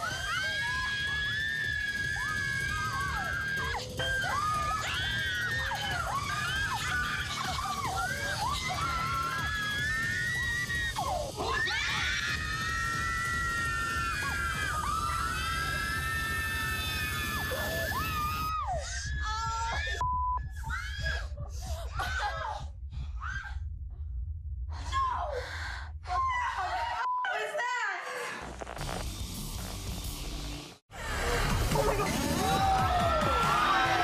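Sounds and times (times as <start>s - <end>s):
women screaming: 0.0s - 20.0s, 31.0s - 34.0s.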